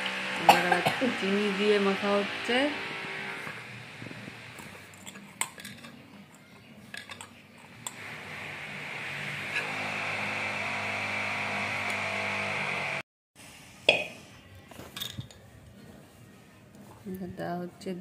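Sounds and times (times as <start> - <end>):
steady hum: 0.0 - 5.2.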